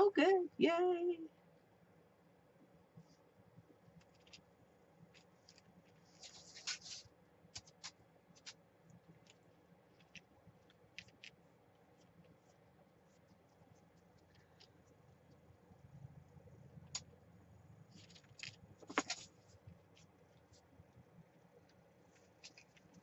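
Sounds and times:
pick scratching paper card: 0:05.1 - 0:08.6, 0:17.9 - 0:20.7
scratchy rustle: 0:05.1 - 0:10.3, 0:17.9 - 0:20.7, 0:22.1 - 0:23.0.

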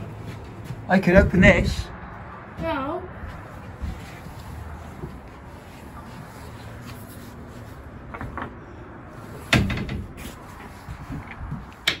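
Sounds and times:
metal door clunk: 0:09.5 - 0:10.2.

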